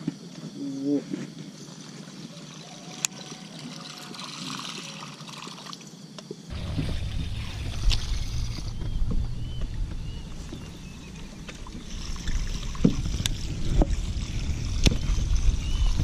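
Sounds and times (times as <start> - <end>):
water lapping against boat hull: 6.5 - 16.0
wind rumble on microphone: 6.5 - 16.0.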